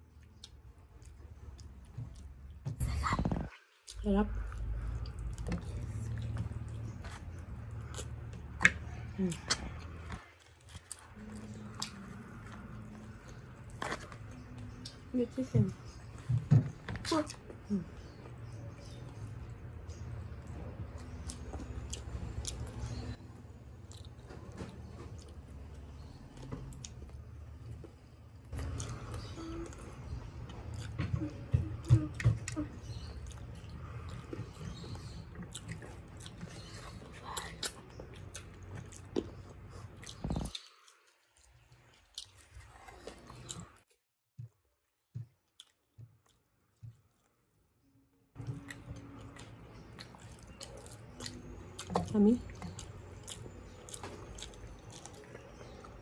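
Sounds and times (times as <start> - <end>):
chewing and biting food: 0.0 - 43.9, 44.9 - 47.3, 48.4 - 56.0
food crunching: 3.2 - 15.1, 32.3 - 43.9, 44.9 - 47.4, 48.4 - 56.0.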